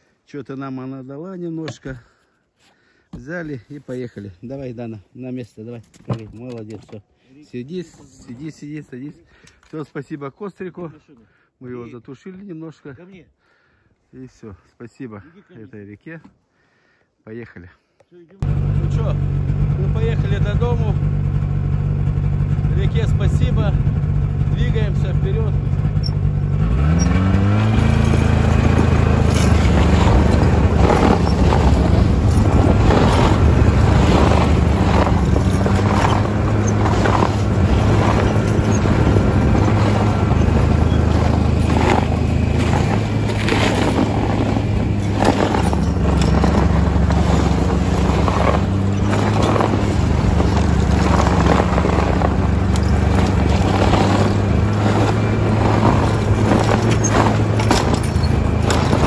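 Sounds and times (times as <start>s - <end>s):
snowmobile engine running: 18.4s - 59.0s
knocks and rattles: 25.4s - 59.0s.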